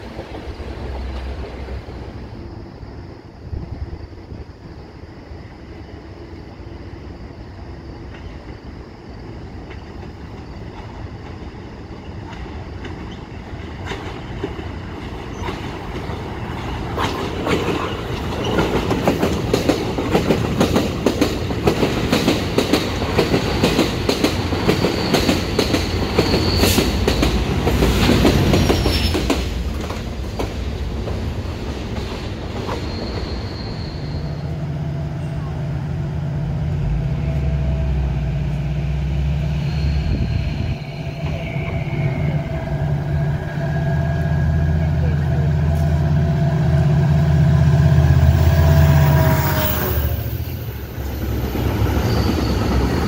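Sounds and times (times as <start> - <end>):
train wheels clicking over rail joints: 9.6 - 33.7
high wheel squeal: 24.6 - 27.3, 28.6 - 29.3, 32.6 - 34.7, 39.1 - 44.8, 48.4 - 53.0.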